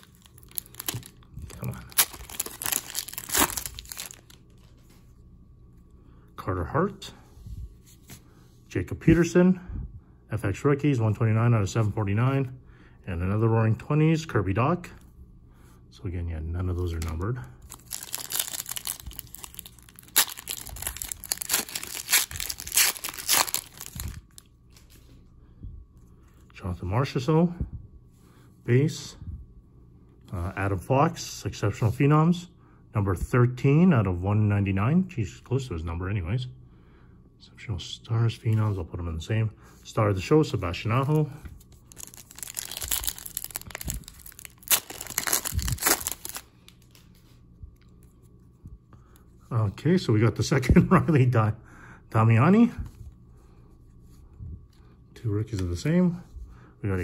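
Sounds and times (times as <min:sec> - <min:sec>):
foil wrapper tearing and crinkling: 0:00.0 - 0:04.4, 0:17.7 - 0:24.4, 0:41.8 - 0:47.0.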